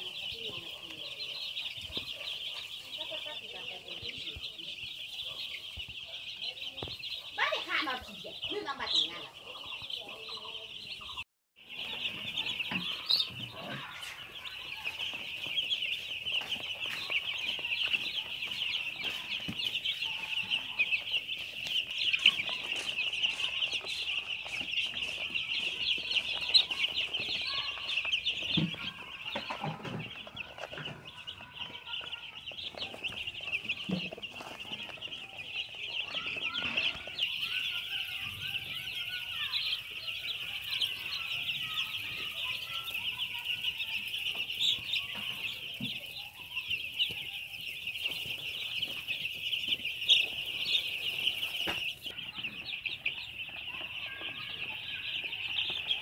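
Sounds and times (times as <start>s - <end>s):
chicks peeping: 0.0s - 56.0s.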